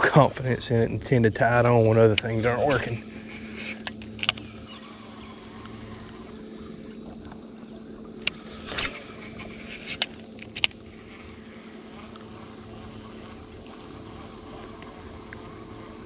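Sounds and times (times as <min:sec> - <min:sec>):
electric trolling motor hum: 0:00.0 - 0:16.0
fishing reel clicks: 0:02.0 - 0:06.2, 0:08.2 - 0:10.8.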